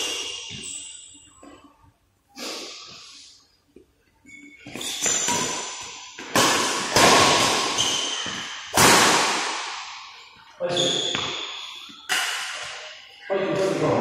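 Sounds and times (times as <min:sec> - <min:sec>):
shoes squeaking on court: 0:00.0 - 0:01.7, 0:04.0 - 0:06.3, 0:07.6 - 0:08.6, 0:10.6 - 0:13.0
rackets hitting shuttlecock: 0:04.7 - 0:10.2, 0:10.8 - 0:12.9.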